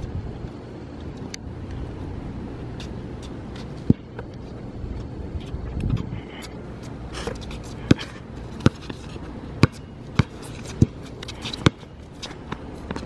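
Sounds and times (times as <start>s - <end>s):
basketball bouncing on hard court: 7.8s - 13.0s.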